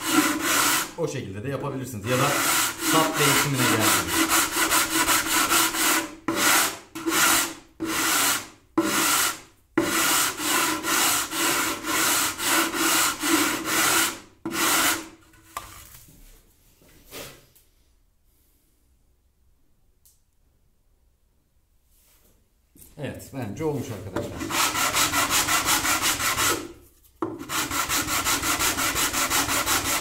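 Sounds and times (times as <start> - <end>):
sanding block rubbing on wood: 0.0 - 1.0, 2.0 - 15.1, 24.2 - 26.7, 27.4 - 30.0.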